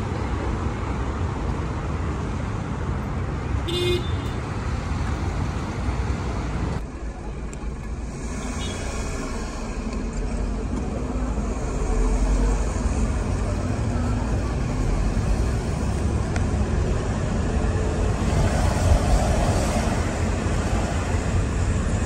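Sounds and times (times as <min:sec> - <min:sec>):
city road traffic: 0:00.0 - 0:22.0
car horn toot: 0:03.6 - 0:04.4.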